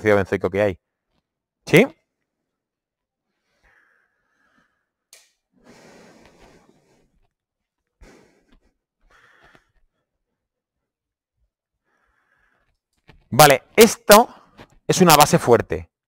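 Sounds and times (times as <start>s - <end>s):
faint breathing: 3.2s - 10.4s, 11.8s - 12.9s.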